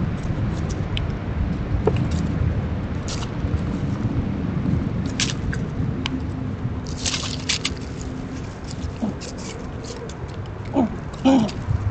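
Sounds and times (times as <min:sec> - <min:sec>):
low rumble: 0:00.0 - 0:11.9
sharp crackles: 0:06.9 - 0:11.8.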